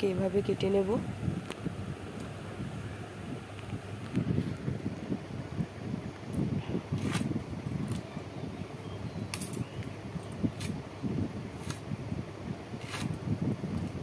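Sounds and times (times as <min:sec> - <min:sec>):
steady low rumble: 0:00.0 - 0:14.0
blade slicing plantain: 0:12.8 - 0:13.2.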